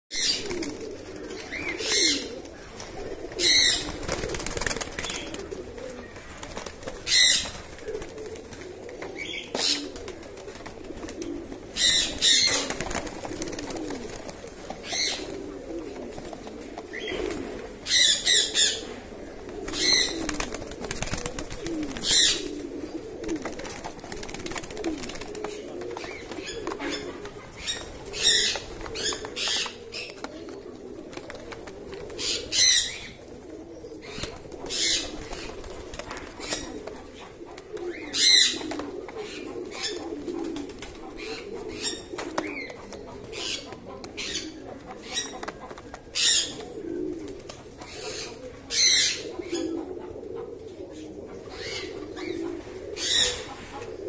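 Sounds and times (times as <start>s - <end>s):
pigeons cooing: 0.1s - 54.0s
wings flapping: 2.9s - 17.5s, 19.5s - 32.7s, 34.1s - 41.2s.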